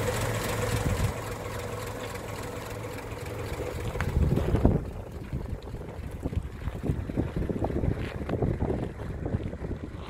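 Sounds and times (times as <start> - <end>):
car engine idling: 0.0 - 10.0
wind buffeting microphone: 3.8 - 10.0.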